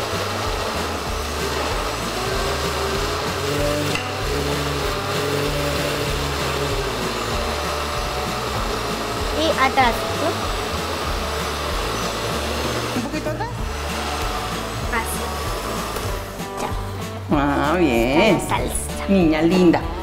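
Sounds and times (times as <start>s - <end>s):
blender running: 0.0s - 17.2s.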